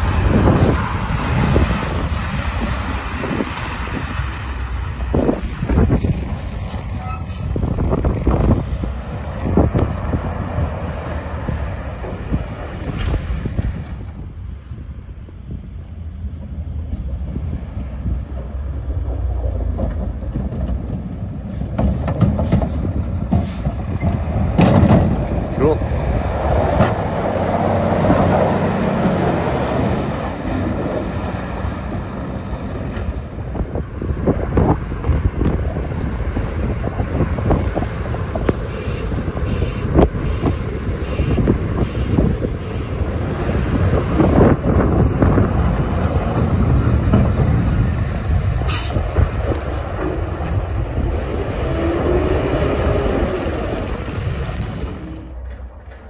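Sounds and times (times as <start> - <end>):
diesel truck engine driving past: 0.0 - 56.0
plow blade scraping pavement: 0.0 - 56.0
wind buffeting microphone: 0.0 - 56.0.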